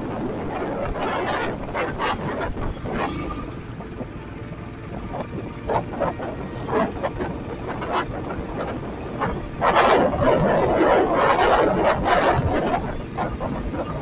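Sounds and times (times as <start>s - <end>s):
motorcycle engine running: 0.0s - 14.0s
road noise: 0.0s - 14.0s
rushing wind: 0.0s - 14.0s.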